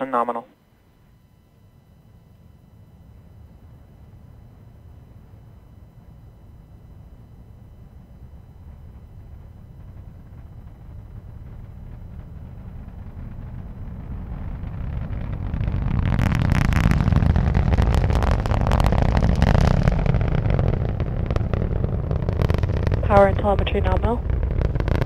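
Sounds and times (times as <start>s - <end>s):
rocket engines rumbling: 1.2s - 25.0s
sharp crackling: 7.9s - 25.0s.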